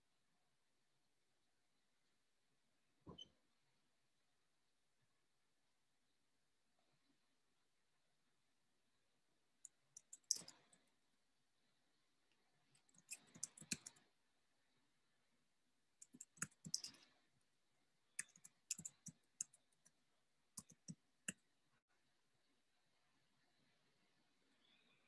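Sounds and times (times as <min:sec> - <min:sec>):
computer keys clicking: 0:09.6 - 0:10.7, 0:12.8 - 0:14.0, 0:16.0 - 0:17.0, 0:18.2 - 0:20.0, 0:20.6 - 0:21.4.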